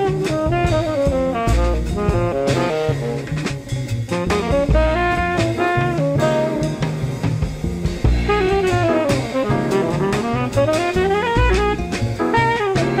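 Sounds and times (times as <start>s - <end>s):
saxophone playing sliding notes: 0.0s - 3.5s, 4.1s - 7.5s, 8.1s - 13.0s
bass: 0.0s - 13.0s
drum kit: 0.0s - 13.0s.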